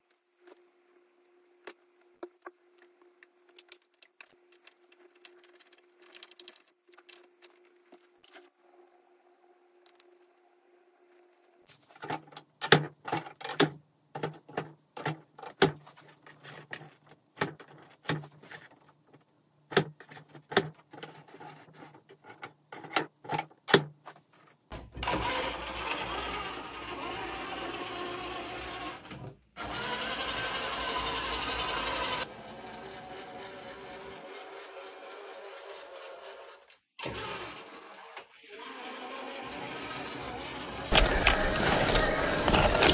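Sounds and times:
toy truck electric motor whirring: 0:25.0 - 0:42.9.

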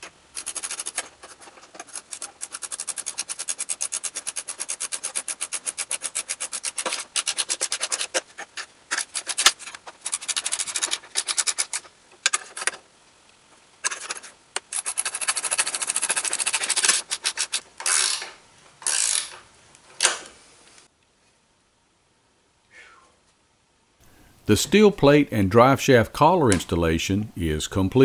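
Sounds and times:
ratchet wrench clicking: 0:14.7 - 0:19.4.

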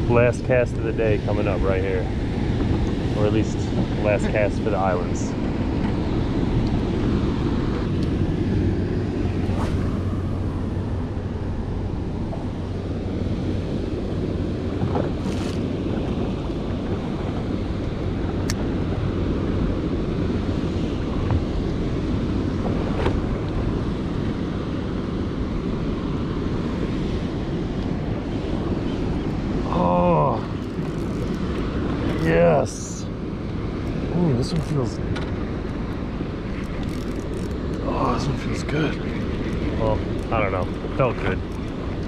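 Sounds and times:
wind buffeting microphone: 0:00.0 - 0:42.0
surf washing against rocks: 0:29.4 - 0:42.0.

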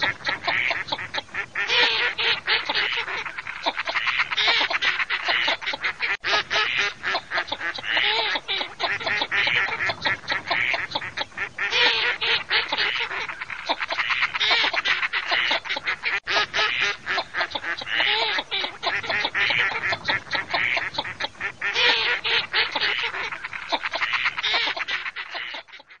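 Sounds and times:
ducks quacking: 0:00.0 - 0:26.0.

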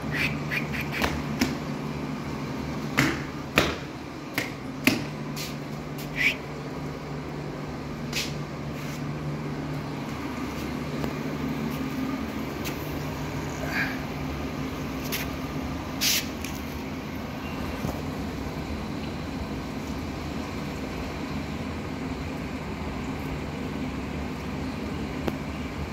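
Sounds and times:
low machine hum: 0:00.0 - 0:25.9
sharp knocks: 0:03.0 - 0:05.1.

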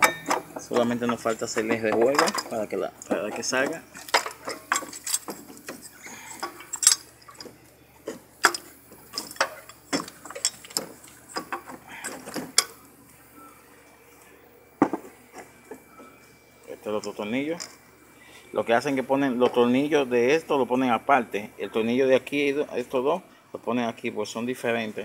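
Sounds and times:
metallic clinks and knocks: 0:00.0 - 0:12.8.

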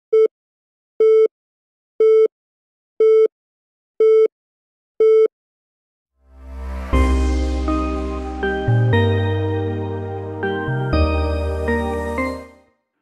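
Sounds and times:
music: 0:06.2 - 0:12.9
rising whoosh with deep bass: 0:06.3 - 0:10.9.

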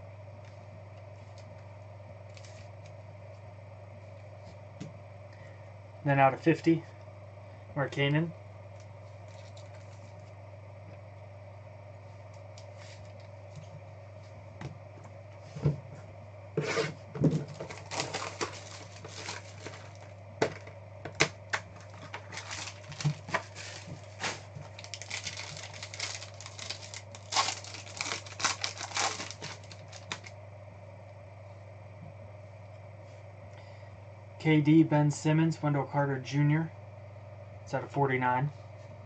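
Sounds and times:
steady low hum: 0:00.0 - 0:39.0
cards and wrapper crinkling: 0:02.3 - 0:02.7, 0:17.3 - 0:20.6, 0:21.2 - 0:30.3.

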